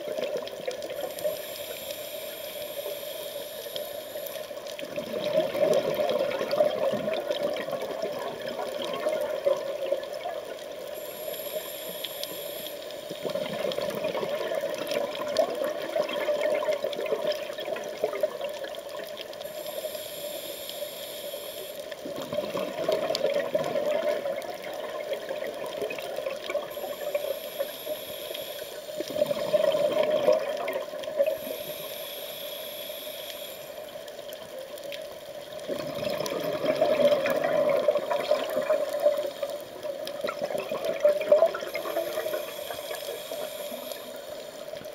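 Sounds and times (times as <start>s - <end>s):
scuba regulator inhalation hiss: 0.8s - 4.8s, 10.8s - 13.8s, 19.4s - 22.1s, 25.2s - 34.2s, 40.9s - 44.9s
exhaled air bubbling: 4.1s - 12.5s, 13.1s - 20.8s, 21.6s - 32.0s, 35.4s - 44.9s.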